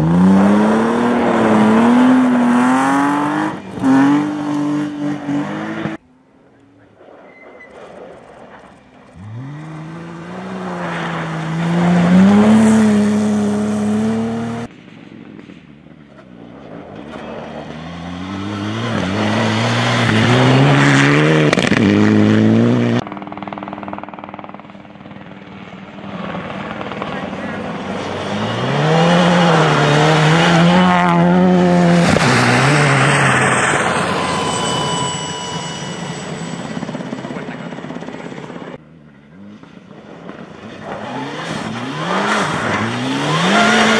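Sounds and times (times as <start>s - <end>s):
rally car engines revving past: 0.0s - 6.0s, 9.0s - 14.7s, 16.5s - 23.0s, 26.9s - 36.9s, 39.1s - 43.9s.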